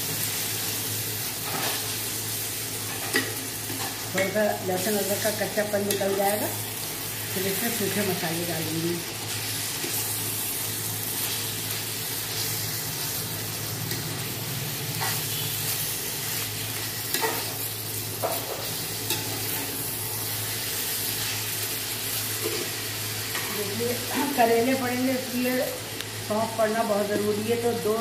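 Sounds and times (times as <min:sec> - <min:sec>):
meat and onions sizzling: 0:00.0 - 0:28.0
spoon stirring and scraping pan: 0:02.8 - 0:04.4, 0:16.4 - 0:19.7.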